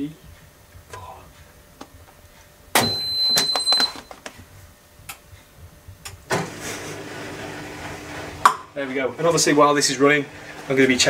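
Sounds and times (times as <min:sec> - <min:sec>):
long high electronic beep: 0:02.8 - 0:04.0
washing machine humming: 0:05.6 - 0:11.0.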